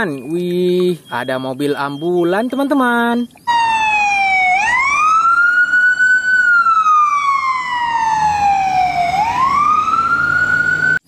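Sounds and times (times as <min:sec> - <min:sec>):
ambulance siren wailing: 0:03.5 - 0:11.0.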